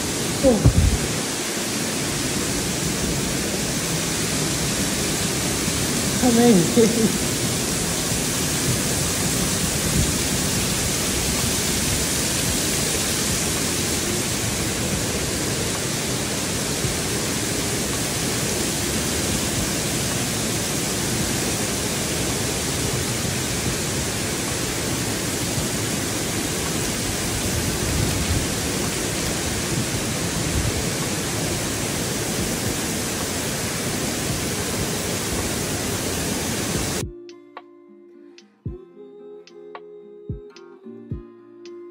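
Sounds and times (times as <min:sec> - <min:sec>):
waterfall rushing: 0:00.0 - 0:37.0.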